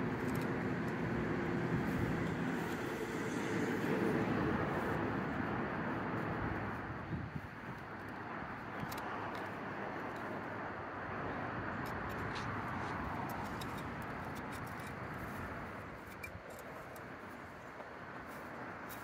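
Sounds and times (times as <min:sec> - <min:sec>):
steady rushing noise: 0:00.0 - 0:19.0
hand digger scraping soil: 0:11.7 - 0:19.0.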